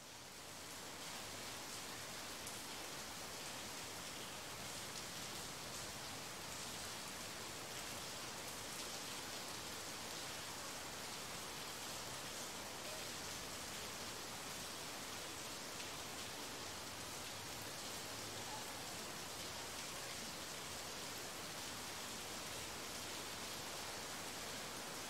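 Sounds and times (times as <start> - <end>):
steady rain hiss: 0.0 - 25.0.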